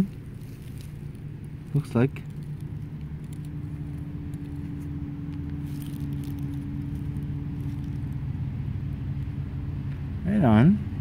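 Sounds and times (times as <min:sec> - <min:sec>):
vehicle engine humming: 0:00.0 - 0:11.0.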